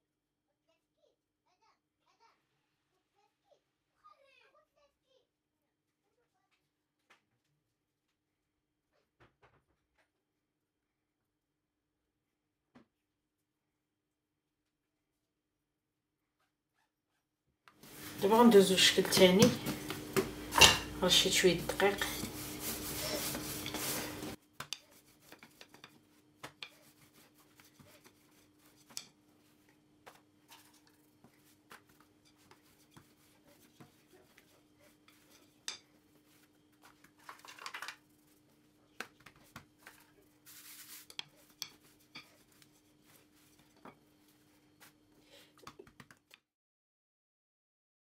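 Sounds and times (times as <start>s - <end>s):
hands kneading dough: 16.4s - 46.3s.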